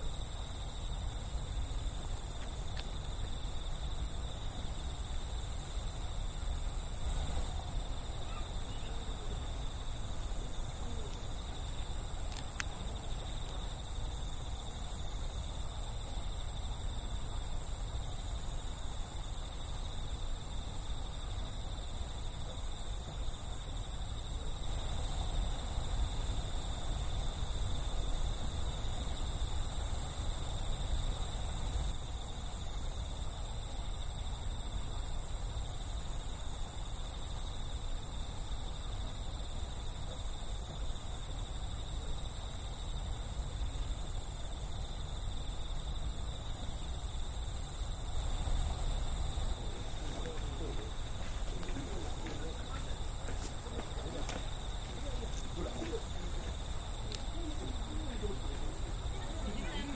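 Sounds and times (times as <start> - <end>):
crickets trilling: 0.0 - 59.9
faint click: 2.4 - 2.9, 11.1 - 12.8
low outdoor rumble: 47.5 - 59.9.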